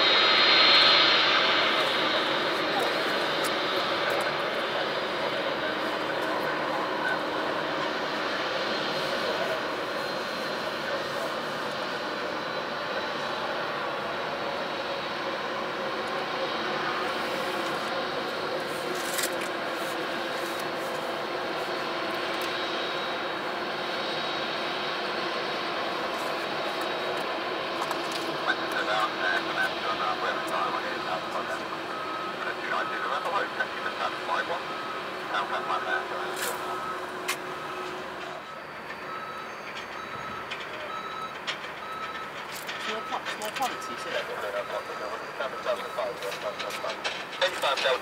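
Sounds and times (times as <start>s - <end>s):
jet engines taxiing: 0.0s - 48.0s
reversing alarm beeps: 28.4s - 48.0s.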